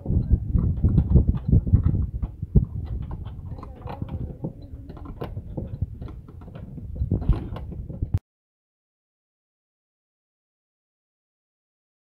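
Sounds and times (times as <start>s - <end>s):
low rumbling background: 0.0s - 8.2s.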